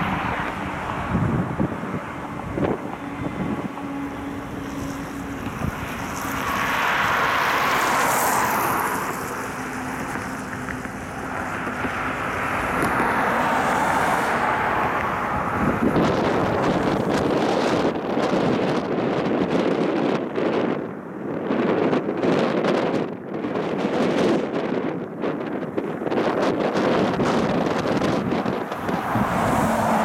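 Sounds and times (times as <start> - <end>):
train rumbling: 0.0 - 18.4
diesel locomotive engine hum: 0.0 - 22.2, 24.5 - 30.0
wind buffeting microphone: 0.0 - 30.0.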